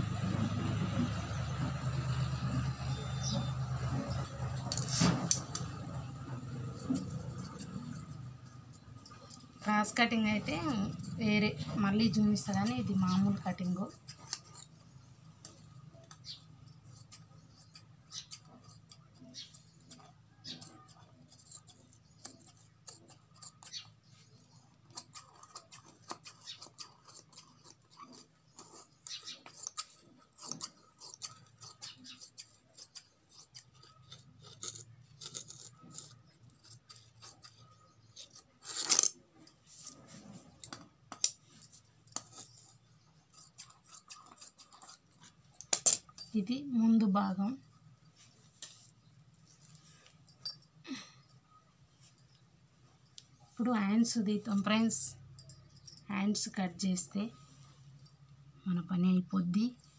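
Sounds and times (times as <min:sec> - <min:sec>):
scissors snipping fabric: 0:24.9 - 0:39.2.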